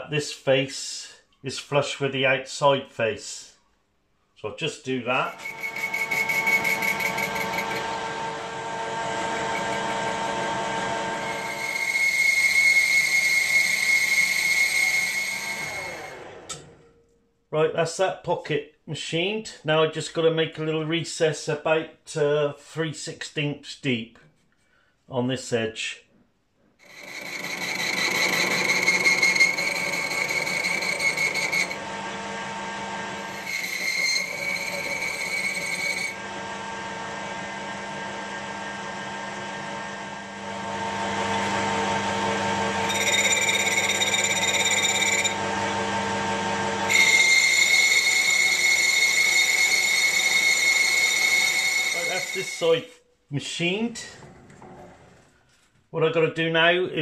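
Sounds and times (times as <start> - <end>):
high ring of cutting tool: 5.2 - 17.0, 26.8 - 31.8, 33.2 - 36.2, 42.7 - 45.5, 46.9 - 52.7
metal lathe running: 5.3 - 16.7, 26.8 - 52.6.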